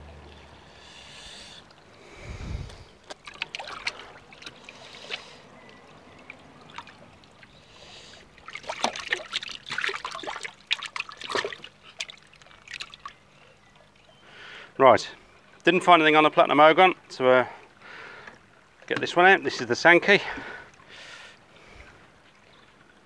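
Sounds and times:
water splashing in plastic bowl: 0:02.7 - 0:13.2.

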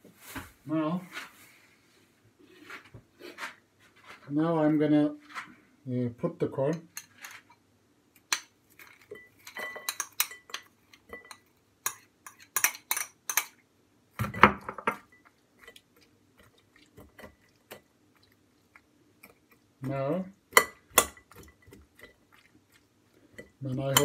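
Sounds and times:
metal spoon scraping and clinking: 0:06.7 - 0:07.6, 0:08.3 - 0:13.6, 0:23.3 - 0:24.0.

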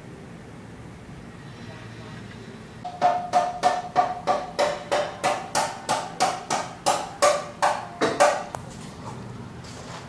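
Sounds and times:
ringing knocks: 0:02.9 - 0:08.5.

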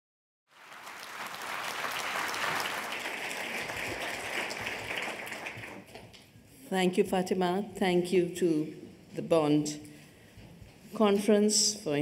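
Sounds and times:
large audience applauding: 0:00.5 - 0:06.0.

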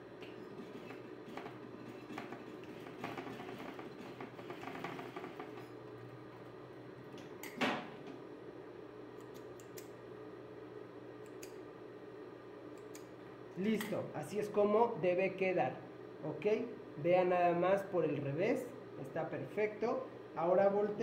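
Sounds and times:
sewing machine stitching: 0:00.5 - 0:05.8.

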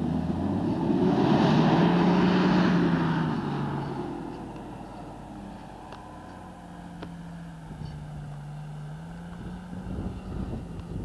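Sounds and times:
vehicle engine humming: 0:00.0 - 0:11.0
wind rumble on microphone: 0:09.2 - 0:11.0.

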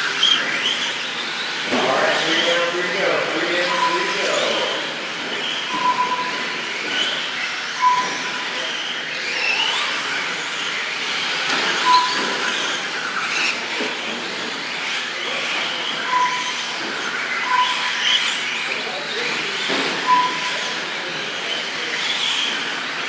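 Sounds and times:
toy truck motor and tyre whine: 0:00.0 - 0:23.0
short electronic beeps: 0:03.4 - 0:04.8, 0:05.6 - 0:06.7, 0:07.8 - 0:08.6, 0:11.8 - 0:12.3, 0:16.0 - 0:16.7, 0:17.4 - 0:18.0, 0:20.0 - 0:20.6.

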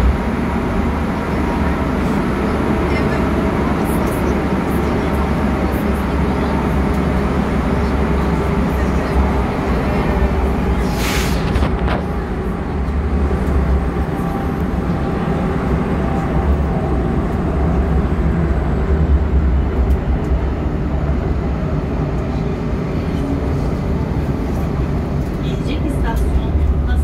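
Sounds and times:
train wheels rumbling: 0:00.0 - 0:27.0
brief hiss: 0:10.8 - 0:11.6.

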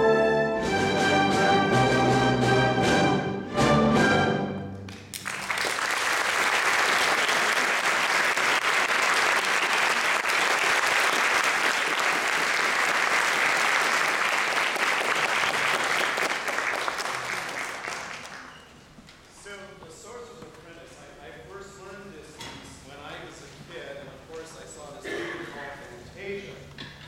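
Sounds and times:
orchestra chord: 0:00.0 - 0:04.8
audience applause: 0:05.0 - 0:18.7.

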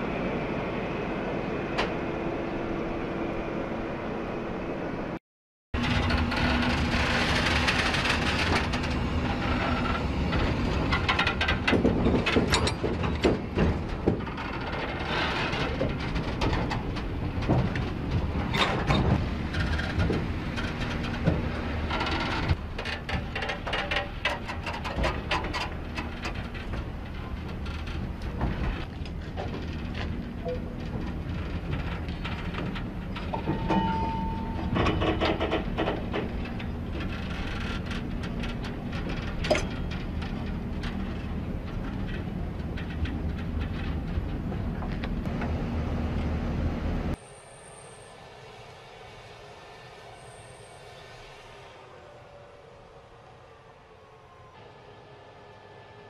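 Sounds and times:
low train rumble: 0:00.0 - 0:05.2, 0:05.8 - 0:56.0
train wheels clattering over rails: 0:05.8 - 0:45.6
high wheel squeal: 0:47.2 - 0:52.0.

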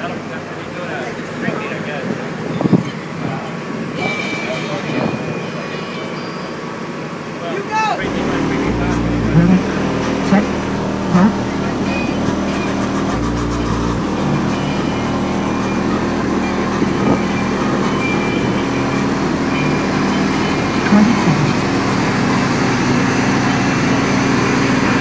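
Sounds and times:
muffled car audio bass: 0:08.0 - 0:22.4.

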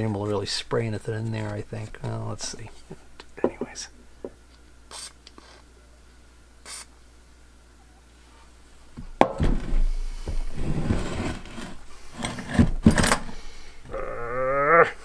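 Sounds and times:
aerosol can hissing: 0:04.9 - 0:05.6, 0:06.7 - 0:06.9
heavy metal clunking and scraping on wood: 0:09.2 - 0:13.4.

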